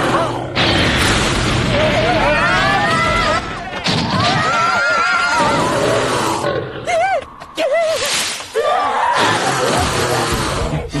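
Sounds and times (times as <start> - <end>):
cartoon voices shrieking and yelling: 8.6 - 11.0.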